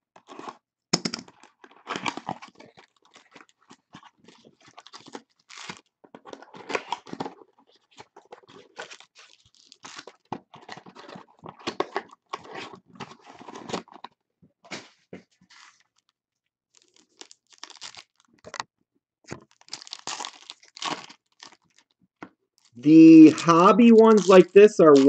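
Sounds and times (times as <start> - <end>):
foil wrappers crinkling and tearing: 1.3 - 14.1, 16.7 - 18.6, 19.3 - 22.0, 22.6 - 25.0.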